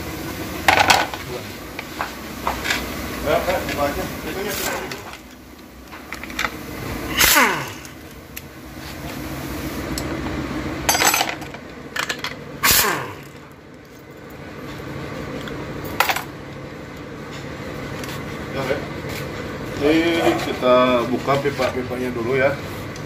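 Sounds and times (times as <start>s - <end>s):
power driver whirring and winding down: 6.2s - 8.5s, 12.6s - 13.5s.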